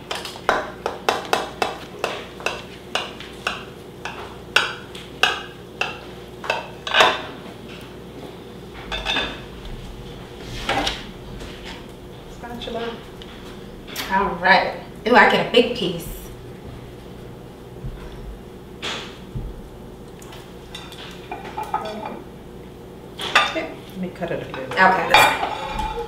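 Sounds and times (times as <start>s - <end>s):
knife scraping a baking dish: 25.1s - 26.0s.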